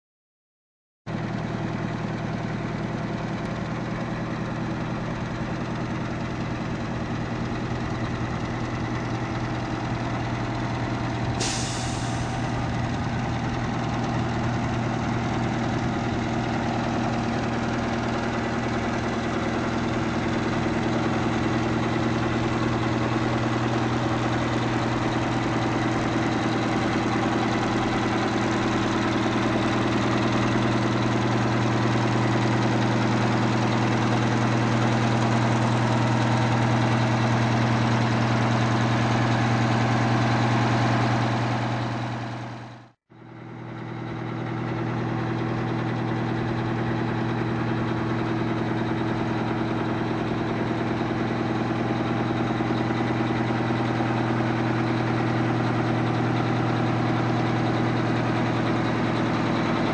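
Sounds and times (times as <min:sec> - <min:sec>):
diesel truck engine idling: 0:01.1 - 0:59.9
air brake hiss: 0:11.4 - 0:12.6.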